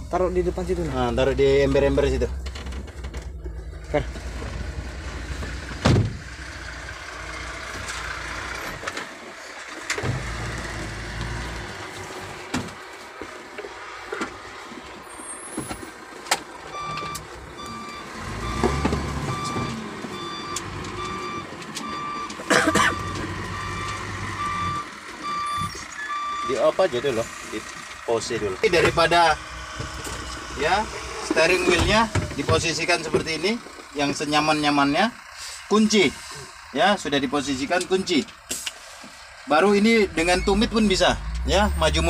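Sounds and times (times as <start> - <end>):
heavy trucks rumbling: 0.0 - 42.0
reversing alarm beeping: 16.7 - 26.6, 40.0 - 42.0.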